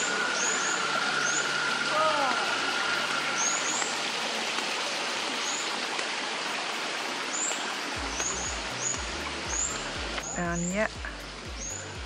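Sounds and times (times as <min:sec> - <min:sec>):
bird chirping: 0:00.0 - 0:01.6, 0:07.3 - 0:10.9, 0:11.5 - 0:12.0
flowing water rushing: 0:00.0 - 0:12.0.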